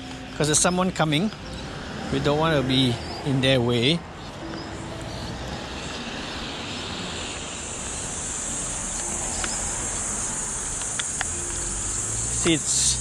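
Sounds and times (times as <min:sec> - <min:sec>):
high-pitched insect shrilling: 0:05.1 - 0:13.0.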